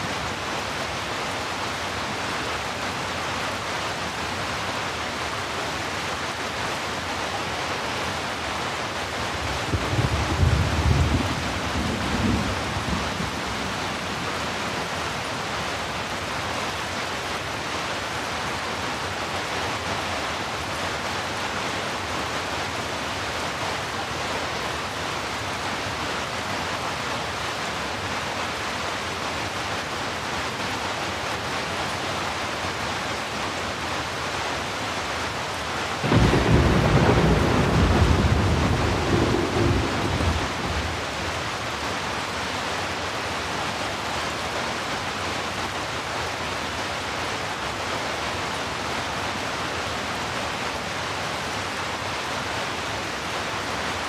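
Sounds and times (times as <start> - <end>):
heavy rain: 0.0 - 54.0
low rumble of thunder: 9.4 - 14.5, 36.0 - 41.3.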